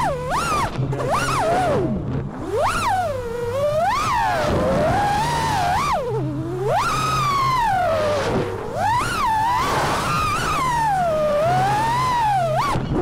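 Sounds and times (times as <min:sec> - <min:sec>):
quadcopter motors whining: 0:00.0 - 0:13.0.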